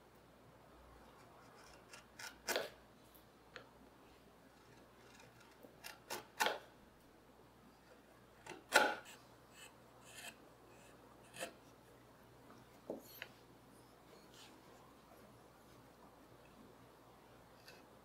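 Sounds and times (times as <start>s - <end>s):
knife cutting strokes on wood: 8.7s - 11.6s.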